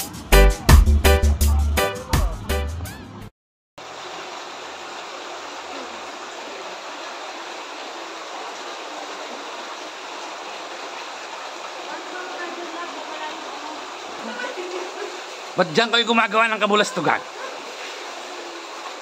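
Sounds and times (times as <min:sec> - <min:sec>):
river water rushing: 0:03.8 - 0:19.0.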